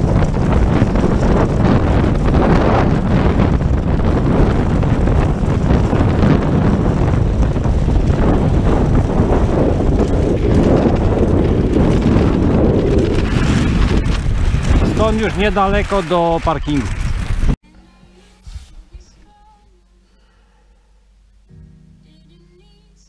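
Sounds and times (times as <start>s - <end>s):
wind buffeting microphone: 0.0s - 17.6s.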